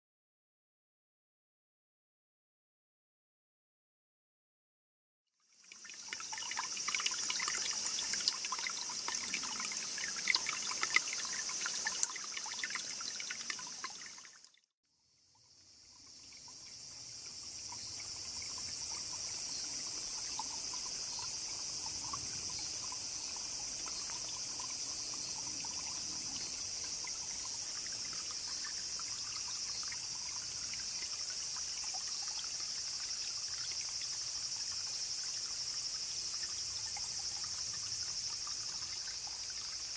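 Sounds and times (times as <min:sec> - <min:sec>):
spring water trickling and dripping: 0:05.4 - 0:39.9
high insect chorus: 0:05.5 - 0:39.9.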